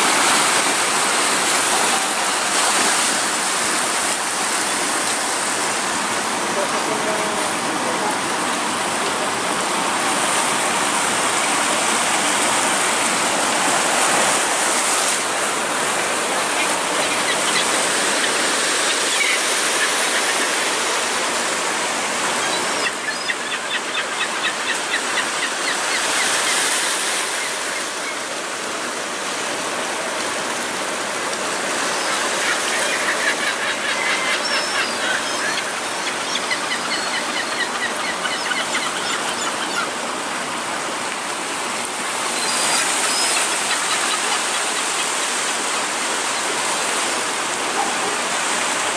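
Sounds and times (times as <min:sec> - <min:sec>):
gulls calling: 0:09.6 - 0:28.3, 0:31.6 - 0:40.6, 0:42.1 - 0:48.9.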